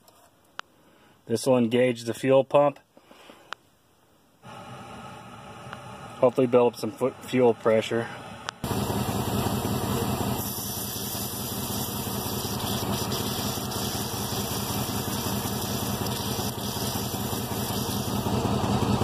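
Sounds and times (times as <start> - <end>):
diesel engine idling: 7.1 - 19.0.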